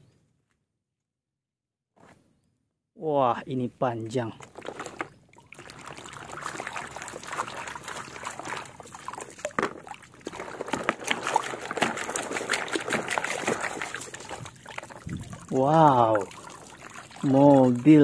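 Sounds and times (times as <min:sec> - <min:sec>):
water splashing in plastic basin: 0:04.4 - 0:18.0.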